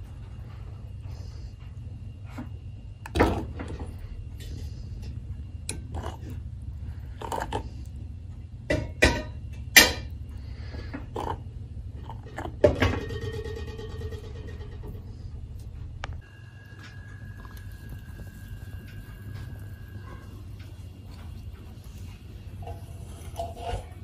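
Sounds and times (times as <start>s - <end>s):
steady low hum: 0.0s - 24.0s.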